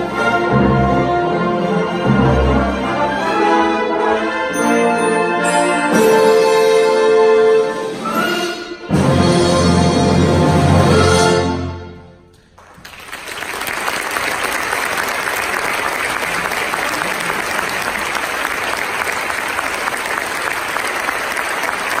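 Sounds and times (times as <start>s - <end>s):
audience applause: 12.6s - 22.0s.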